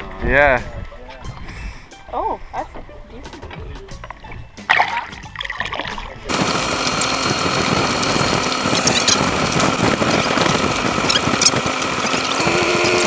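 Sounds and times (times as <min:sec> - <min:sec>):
outboard motor running: 0:04.0 - 0:13.0.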